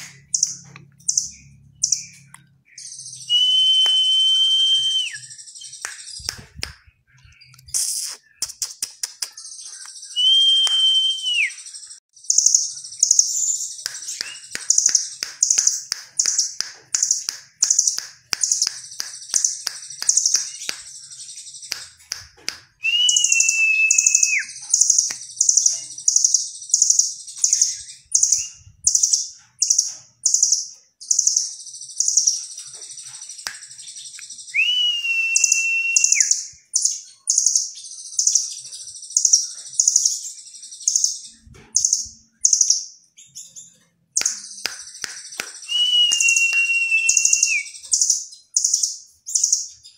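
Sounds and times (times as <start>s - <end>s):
bird chirping high: 0.0s - 49.9s
long steady bird whistle: 2.7s - 6.4s, 9.7s - 16.3s, 22.8s - 25.6s, 33.3s - 41.1s, 44.2s - 49.7s.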